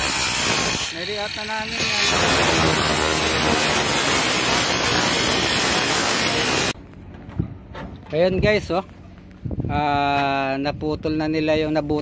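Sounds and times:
angle grinder cutting metal: 0.0s - 6.8s.

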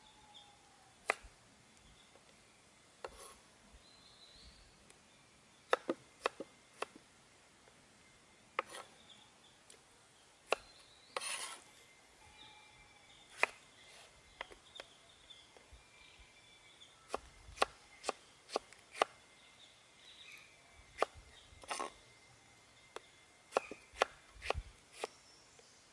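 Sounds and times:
short rough scrape: 11.2s - 11.6s
cleaver chopping on wooden board: 23.5s - 25.1s.

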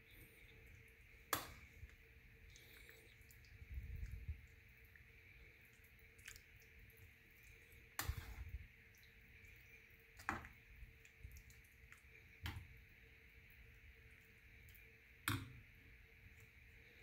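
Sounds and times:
spoon stirring thick porridge: 4.9s - 12.7s.

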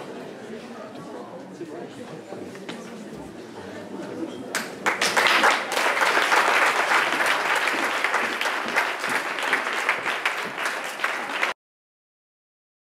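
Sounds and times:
audience applauding: 4.6s - 11.6s.

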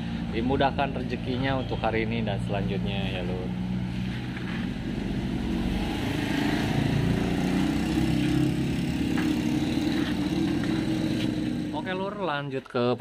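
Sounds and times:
engine running steadily: 7.8s - 11.9s.

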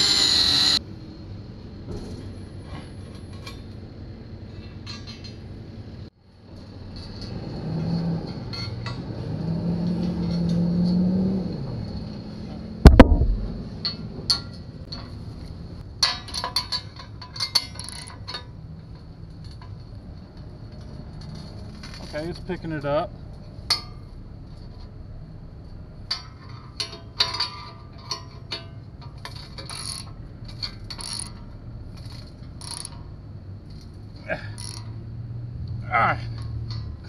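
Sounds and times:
loud metal bang: 12.8s - 13.6s
low hum falling in pitch: 12.8s - 13.7s
tools clinking against steel: 16.0s - 18.6s, 26.1s - 33.0s, 33.7s - 34.9s.

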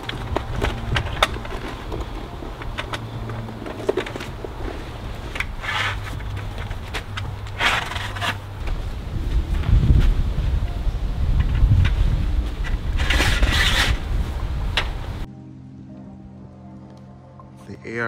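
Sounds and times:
fabric rubbing and scraping: 0.0s - 10.6s, 11.6s - 14.8s
steady low rumble: 0.0s - 17.4s.

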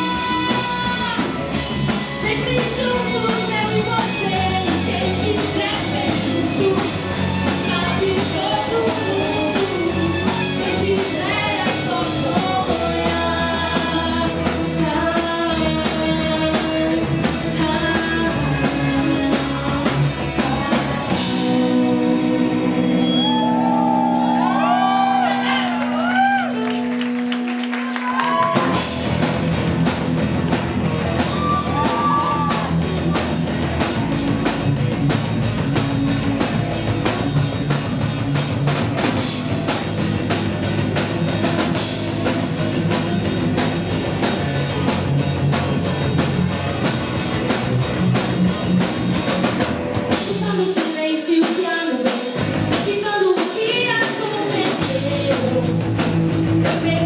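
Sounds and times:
woman singing: 0.0s - 1.4s, 2.0s - 23.6s, 50.1s - 55.8s, 56.6s - 57.0s
live rock band playing: 0.0s - 57.0s.

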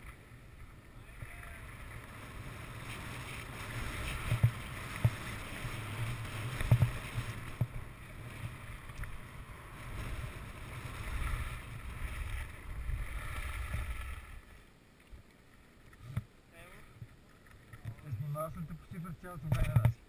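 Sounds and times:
skis scraping over snow: 0.0s - 14.6s
wind rumbling on microphone: 0.0s - 14.6s.

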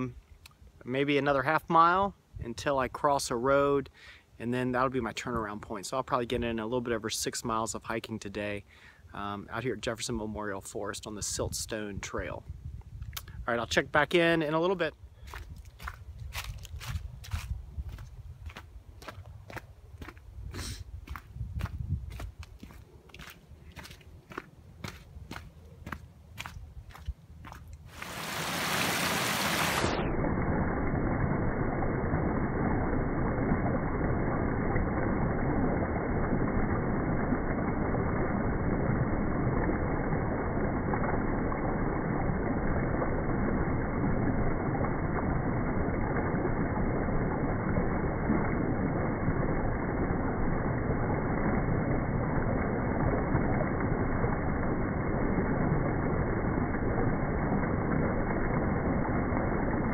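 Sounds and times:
creek water splashing over log: 15.2s - 20.3s, 21.0s - 30.0s.

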